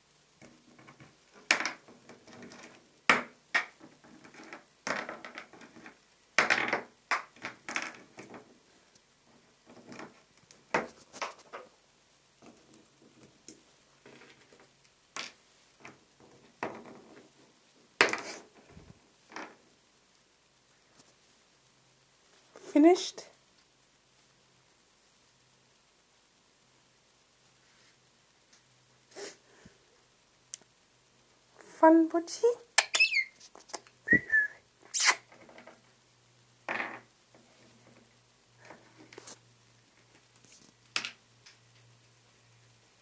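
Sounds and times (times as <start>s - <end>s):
pebbles clacking together: 0.4s - 11.8s, 12.4s - 19.7s, 36.6s - 41.9s.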